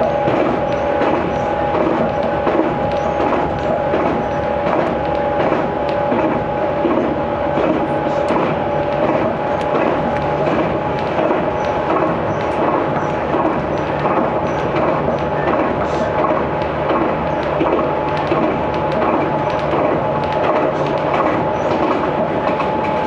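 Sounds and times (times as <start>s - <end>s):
wheels rumbling on rail: 0.0s - 23.0s.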